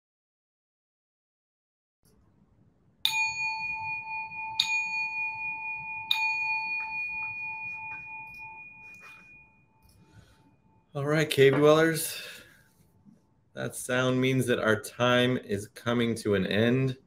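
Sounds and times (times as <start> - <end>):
bell chime ringing: 3.0 - 11.0.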